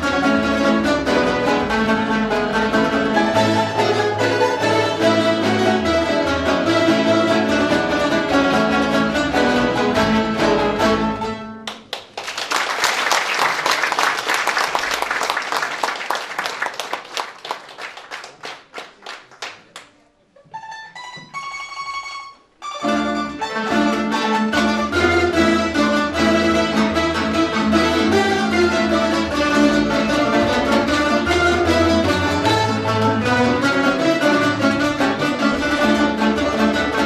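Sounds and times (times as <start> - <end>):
plucked string band playing: 0.0 - 11.6, 20.4 - 37.0
audience applause: 11.7 - 20.0.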